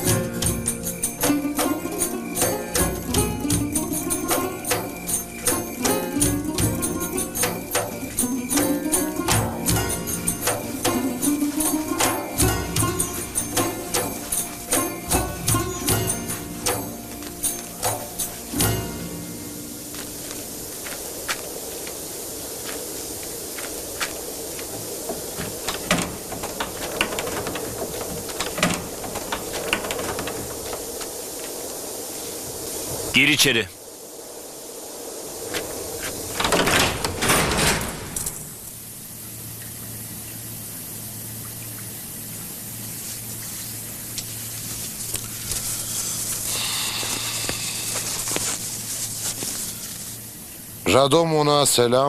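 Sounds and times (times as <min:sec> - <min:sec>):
steady hiss: 0:00.0 - 0:52.0
paper scroll rustling and crackling: 0:22.6 - 0:31.7, 0:43.0 - 0:50.2
loud door thuds: 0:36.3 - 0:38.4.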